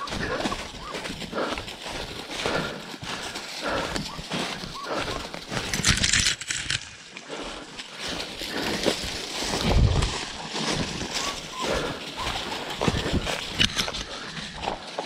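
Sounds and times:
dog panting: 0.0s - 5.7s, 11.0s - 14.4s
footsteps crunching through dry leaves: 0.0s - 15.0s.

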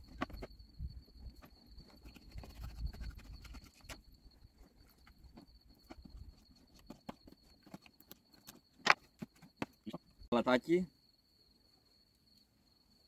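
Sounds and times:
cricket trill: 0.0s - 13.0s.

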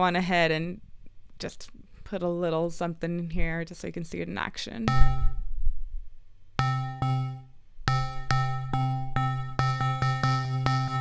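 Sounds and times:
step sequencer repeated note: 4.9s - 5.5s, 6.6s - 11.0s.

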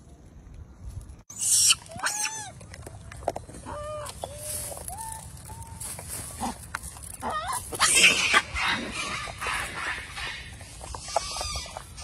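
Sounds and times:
macaques cooing and squeaking: 1.3s - 2.6s, 3.6s - 12.0s
corn kernels rustling in sack: 4.1s - 8.0s.

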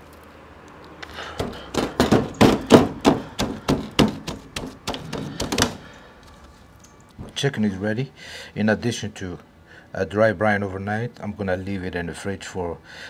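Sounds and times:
hand patting raw chicken: 1.3s - 5.9s.

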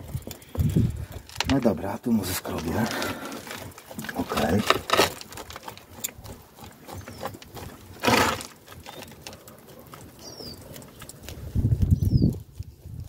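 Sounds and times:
metal hook scraping soil: 0.4s - 9.4s.

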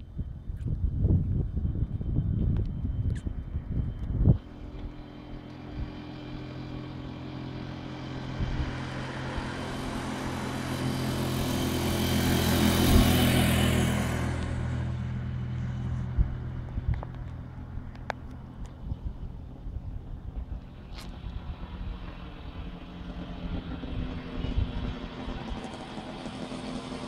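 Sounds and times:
wind rumble on microphone: 0.0s - 6.9s, 7.6s - 25.9s
diesel truck engine running: 4.4s - 27.0s.

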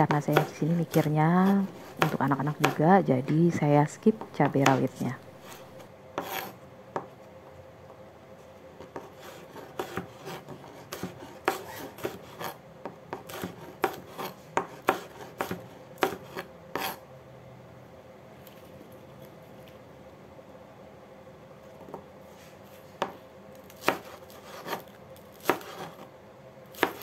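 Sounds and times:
knife slicing chilies: 0.0s - 6.6s, 8.8s - 17.0s, 23.6s - 26.1s, 26.7s - 27.0s.

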